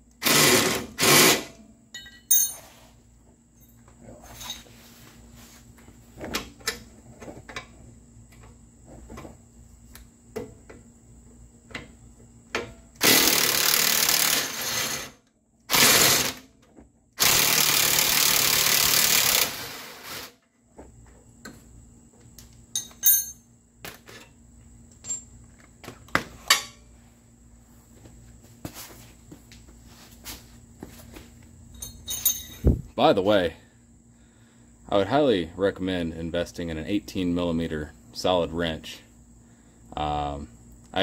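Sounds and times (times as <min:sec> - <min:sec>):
metallic clinks of tools: 0:01.9 - 0:02.8, 0:22.7 - 0:23.5, 0:31.7 - 0:32.8.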